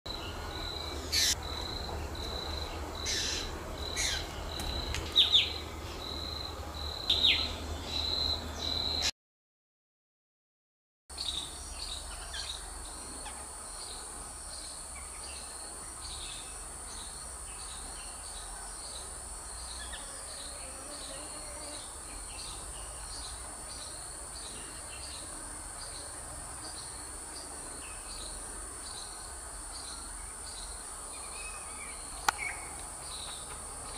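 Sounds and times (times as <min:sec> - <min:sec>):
high insect trill: 0:00.1 - 0:09.1
high insect whine: 0:00.1 - 0:09.1.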